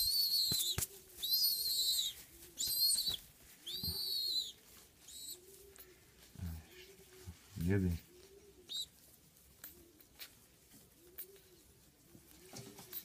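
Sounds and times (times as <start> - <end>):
young pigeon begging squeaks: 0.0 - 6.0, 8.0 - 9.0.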